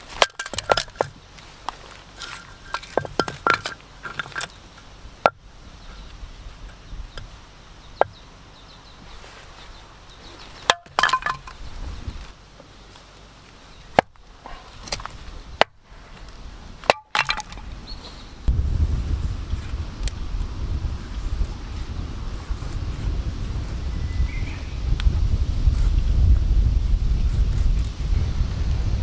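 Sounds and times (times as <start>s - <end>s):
firewood cracking and knocking: 0.0s - 5.4s, 10.6s - 11.7s, 13.9s - 14.2s, 14.8s - 15.8s, 16.8s - 17.8s.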